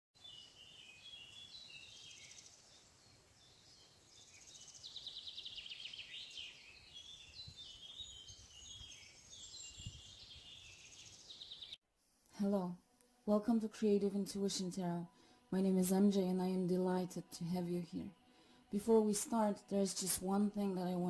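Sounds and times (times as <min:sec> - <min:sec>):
small birds chirping and trilling: 0:00.2 - 0:11.8.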